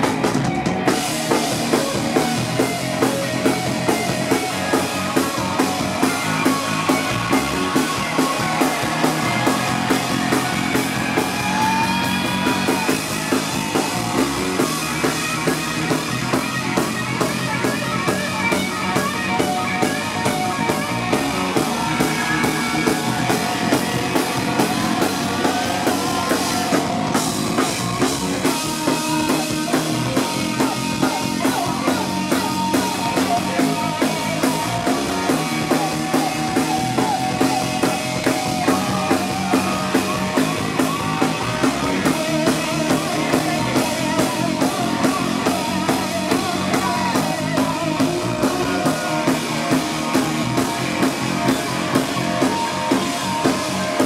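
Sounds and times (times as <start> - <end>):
bass guitar: 0.0 - 54.0
electric guitar: 0.0 - 54.0
rock drum beat: 0.0 - 54.0.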